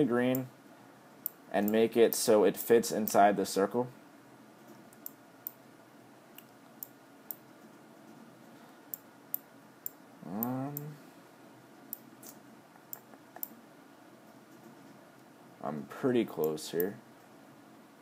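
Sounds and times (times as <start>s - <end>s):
computer mouse clicks: 4.8s - 5.6s.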